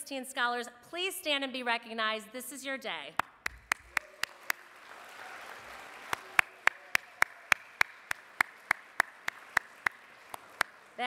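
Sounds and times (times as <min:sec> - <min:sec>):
hand clapping near microphone: 0:03.2 - 0:11.0
faint applause: 0:03.4 - 0:11.0.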